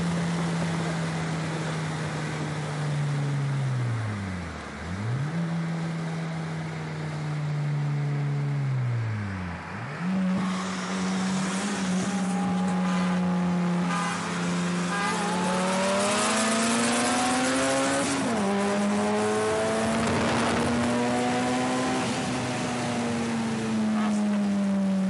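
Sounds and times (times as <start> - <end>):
car engine at high revs: 0.0 - 25.0
wind noise: 18.5 - 22.8.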